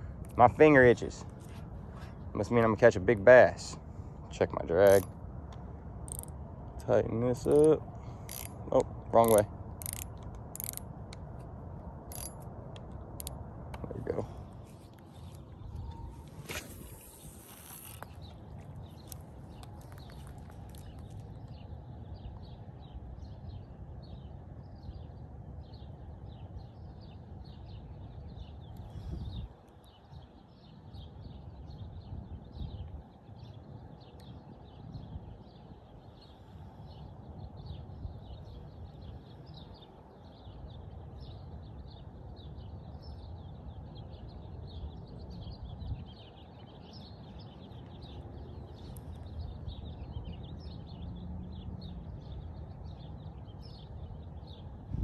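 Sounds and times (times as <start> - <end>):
small birds chirping: 0.0 - 11.3, 11.9 - 55.0
steady low rumble: 0.0 - 29.7.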